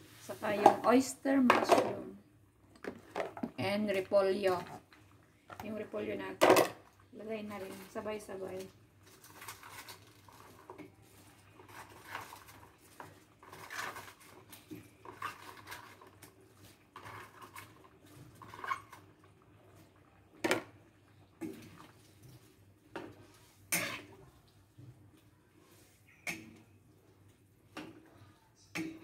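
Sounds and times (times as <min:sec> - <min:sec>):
ladle stirring and scraping wok: 0:07.4 - 0:19.2, 0:21.4 - 0:28.0.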